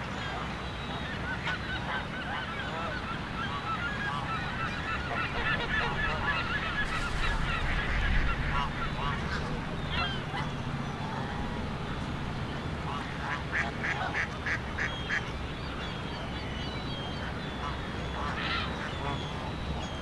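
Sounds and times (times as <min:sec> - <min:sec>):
geese and waterfowl calling: 0:00.0 - 0:20.0
steady low rumble: 0:05.3 - 0:13.4.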